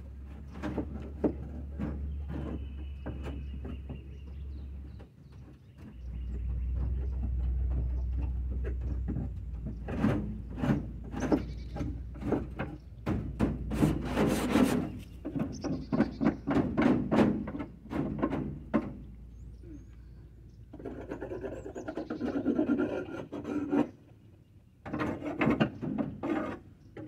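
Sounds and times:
hand scraper scraping wood: 0:08.6 - 0:12.8, 0:13.4 - 0:17.7, 0:20.8 - 0:24.0, 0:24.9 - 0:26.6.

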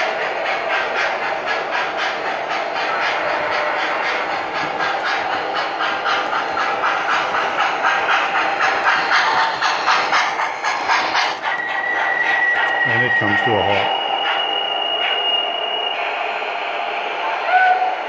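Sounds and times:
model train rhythmic beat: 0:00.0 - 0:18.0
steady high tone: 0:12.8 - 0:13.9.

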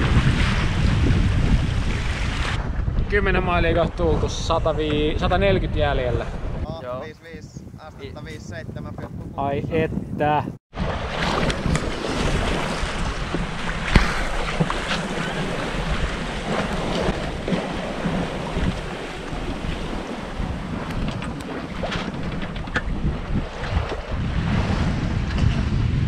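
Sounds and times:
waves washing along hull: 0:00.0 - 0:07.0, 0:10.7 - 0:26.0
wind buffeting microphone: 0:00.0 - 0:26.0
water slap on hull: 0:10.7 - 0:26.0.

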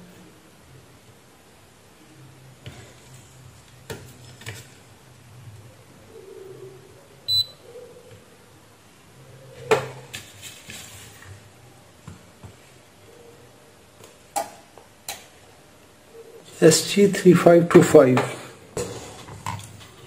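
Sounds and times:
multimeter beep: 0:07.3 - 0:07.6.

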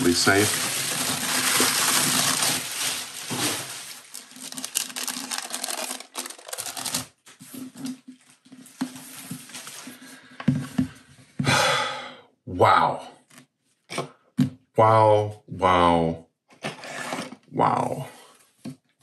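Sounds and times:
bubble wrap crinkling: 0:00.0 - 0:07.6.

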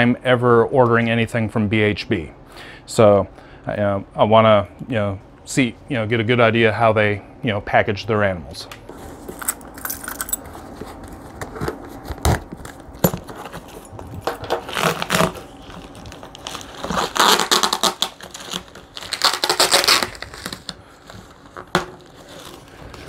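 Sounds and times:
tape tearing and crinkling: 0:08.9 - 0:23.0
key scraping packing tape: 0:09.3 - 0:10.5, 0:13.3 - 0:23.0.

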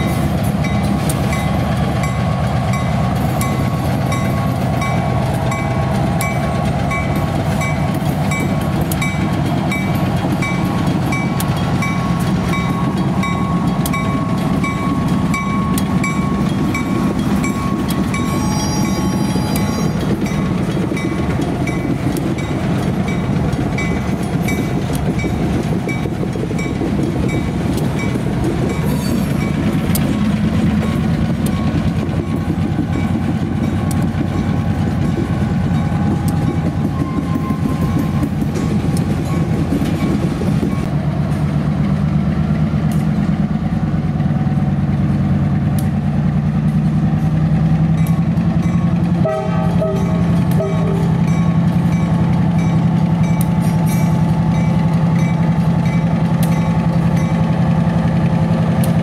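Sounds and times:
train wheels clacking over rails: 0:00.0 - 0:59.0
diesel engine drone: 0:40.3 - 0:53.5.

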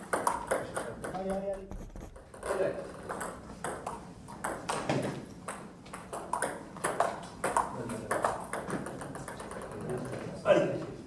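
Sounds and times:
table tennis ball clicking: 0:05.4 - 0:10.2.

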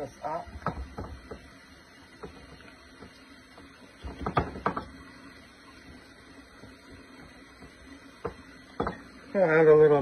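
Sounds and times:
utensil knocking on plastic bowl: 0:00.5 - 0:01.4, 0:04.0 - 0:04.9, 0:08.2 - 0:09.0.

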